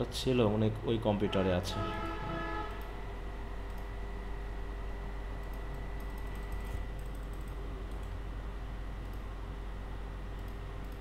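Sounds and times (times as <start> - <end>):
steady low hum: 0.0 - 11.0
computer mouse and keyboard clicking: 5.4 - 8.2, 10.4 - 11.0.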